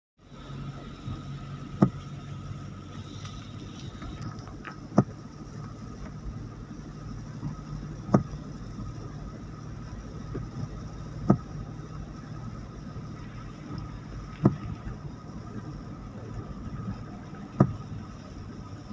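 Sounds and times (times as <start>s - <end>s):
car cabin drone: 0.2s - 18.9s
tyres on wet road: 0.2s - 18.9s
windscreen wiper knocks: 1.0s - 2.1s, 3.4s - 6.4s, 7.4s - 8.6s, 10.2s - 11.7s, 13.2s - 18.1s.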